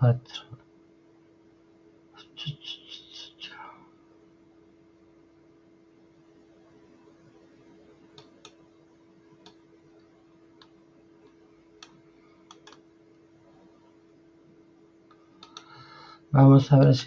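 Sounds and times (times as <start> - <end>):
faint steady hum: 0.0 - 17.0
mouse and keyboard clicks: 10.6 - 12.8.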